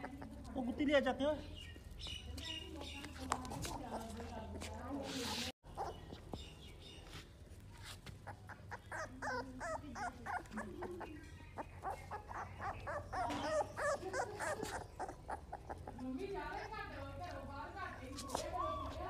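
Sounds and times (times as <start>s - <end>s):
puppy whining: 5.7s - 6.2s, 8.2s - 17.0s, 18.0s - 19.0s.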